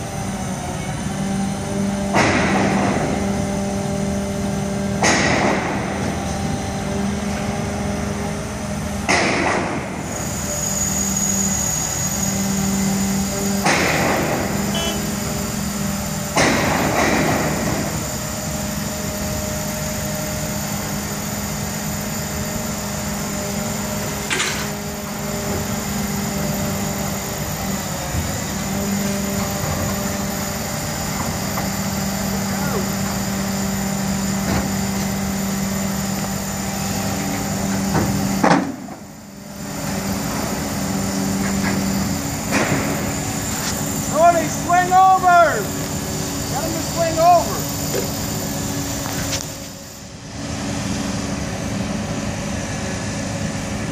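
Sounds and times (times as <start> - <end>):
crane engine running: 0.0 - 53.9
loud noisy bursts: 8.5 - 36.6, 39.0 - 50.5.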